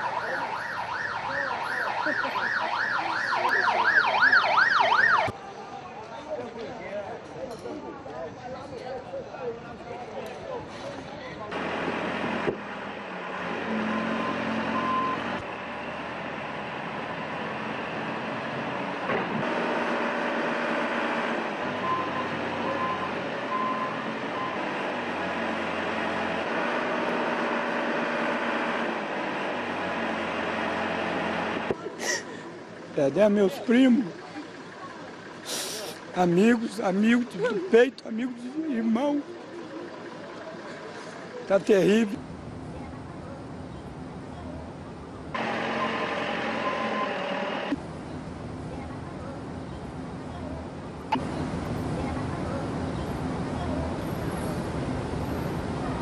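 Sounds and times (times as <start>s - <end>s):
emergency siren wailing: 0.0s - 5.4s, 45.4s - 47.8s
diesel engines of heavy machinery: 0.0s - 56.0s
backup alarm beeping: 45.4s - 47.4s.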